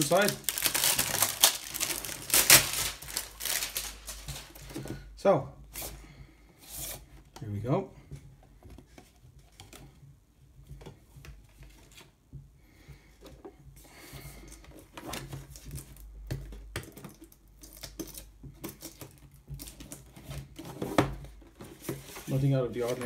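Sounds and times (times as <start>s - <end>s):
cardboard sliding and rubbing: 20.5s - 23.0s.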